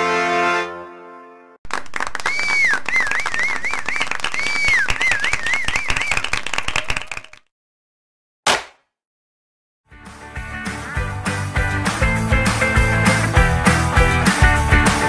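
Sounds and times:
rapid clapping or clicking: 1.7s - 7.5s
high whistle: 2.2s - 7.1s.

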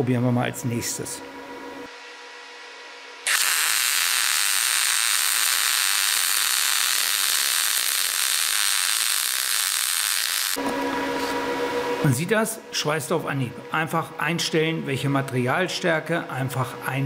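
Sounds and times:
welding arc hissing: 3.3s - 10.6s.

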